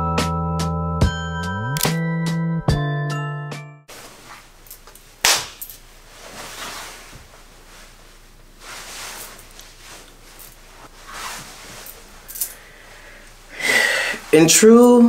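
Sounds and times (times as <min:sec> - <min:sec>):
soft rustling: 0:03.9 - 0:13.5.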